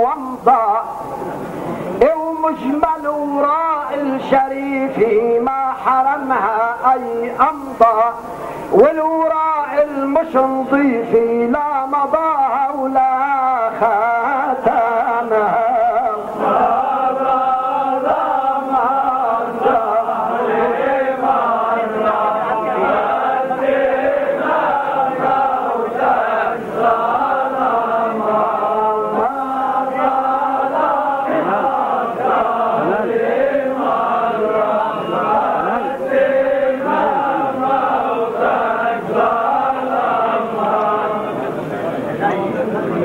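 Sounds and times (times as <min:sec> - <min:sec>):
men chanting in unison: 0:02.0 - 0:41.5.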